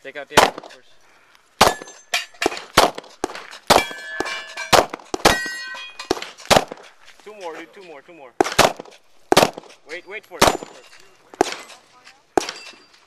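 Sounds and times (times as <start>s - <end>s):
pistol shots: 0.3s - 0.8s, 1.6s - 6.9s, 8.4s - 12.9s
bullets clanging on steel targets: 0.4s - 1.0s, 1.6s - 13.0s.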